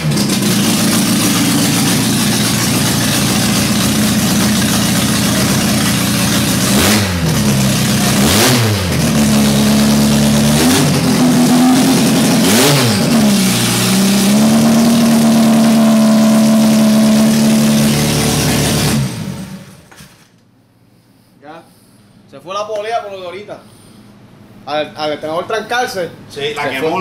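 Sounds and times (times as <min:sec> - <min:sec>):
car engine revving: 0:00.0 - 0:19.8.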